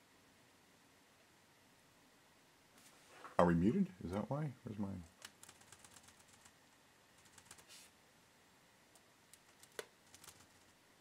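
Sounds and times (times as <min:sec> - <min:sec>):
laptop keys clicking: 0:05.2 - 0:06.6, 0:07.2 - 0:07.6, 0:09.0 - 0:10.7.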